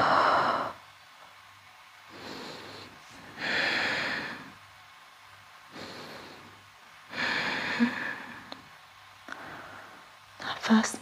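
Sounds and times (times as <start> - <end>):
person breathing deeply: 0.0 - 0.8, 2.1 - 4.6, 5.7 - 8.6, 9.3 - 10.1.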